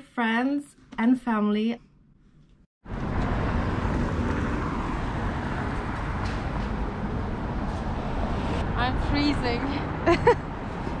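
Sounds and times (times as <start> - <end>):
street hum: 2.4 - 11.0
passing cars: 2.8 - 11.0.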